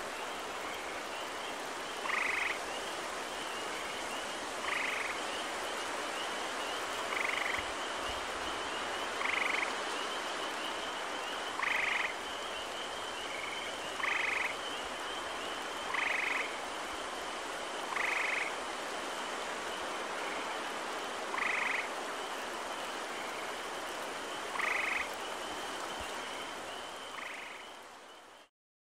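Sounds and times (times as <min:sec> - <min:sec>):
tree frogs trilling: 0:00.1 - 0:28.5
chorus of spring peepers: 0:02.0 - 0:02.6, 0:11.2 - 0:16.5, 0:24.5 - 0:25.5.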